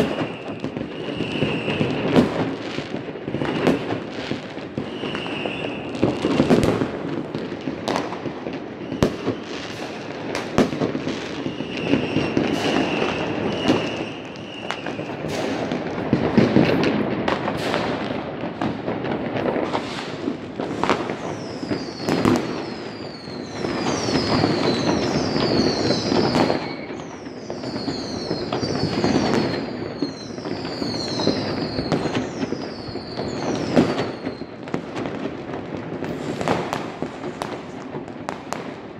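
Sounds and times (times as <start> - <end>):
falling firework whistles: 0.0 - 38.9
firework bangs: 0.0 - 38.9
fireworks crackling: 0.0 - 38.9.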